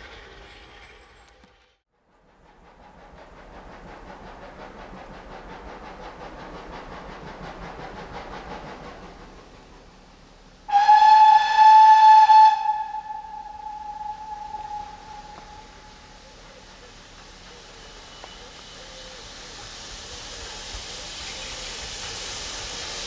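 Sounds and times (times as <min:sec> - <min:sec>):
steam locomotive exhaust chuffs: 0:00.0 - 0:23.0
steam whistle blast: 0:10.7 - 0:16.3.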